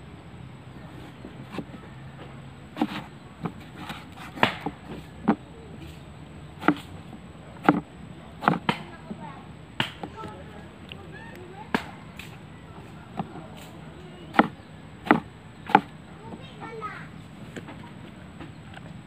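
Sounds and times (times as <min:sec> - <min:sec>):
cleaver chopping on cutting board: 0:02.8 - 0:05.4, 0:06.6 - 0:06.9, 0:07.6 - 0:07.8, 0:08.4 - 0:08.8, 0:14.3 - 0:15.9.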